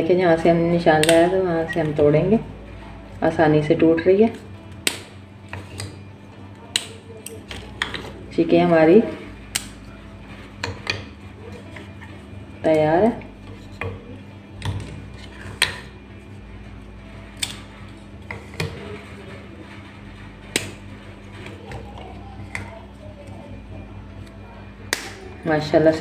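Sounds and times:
brittle snapping by hand: 4.8 - 6.0, 6.7 - 8.0, 9.5 - 9.8, 17.4 - 17.6, 24.9 - 25.2.

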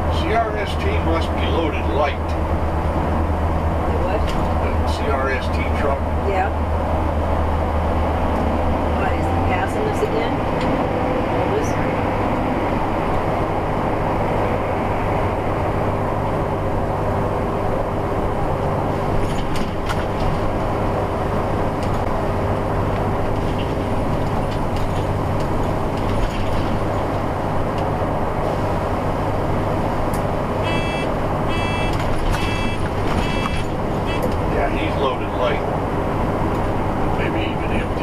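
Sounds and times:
diesel engine drone: 0.0 - 38.0
road and tyre noise: 0.0 - 38.0
short high beeps: 30.6 - 34.3.

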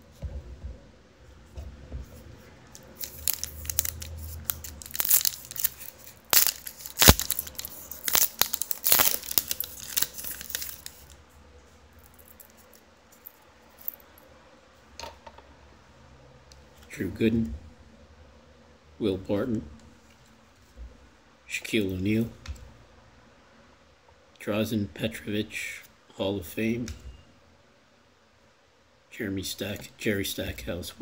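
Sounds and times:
card pack wrapper tearing: 2.8 - 11.2.

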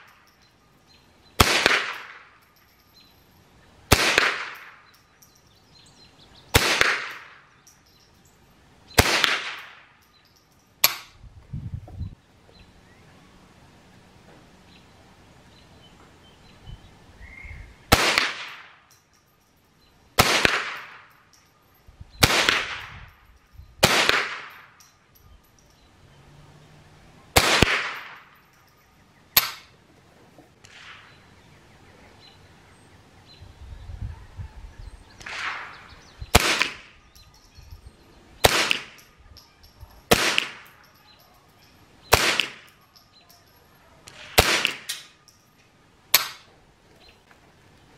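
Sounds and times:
rifle shots cracking with echo: 1.4 - 2.3, 3.9 - 4.9, 6.5 - 7.4, 9.0 - 9.9, 17.9 - 18.8, 20.2 - 21.1, 22.2 - 22.9, 23.8 - 24.7, 27.4 - 28.3, 35.2 - 36.9, 38.4 - 39.0, 40.1 - 40.8, 42.1 - 42.7, 44.1 - 45.0.

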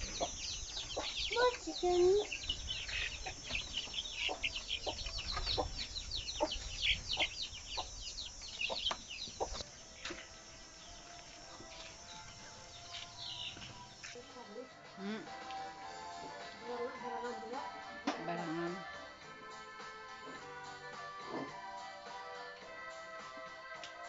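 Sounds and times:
chicks cheeping: 0.0 - 14.2.

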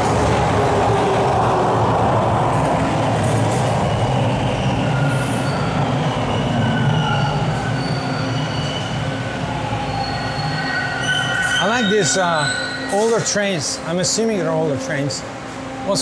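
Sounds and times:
subway train rumbling: 0.0 - 16.0
high-pitched wheel squeals: 4.6 - 13.8.

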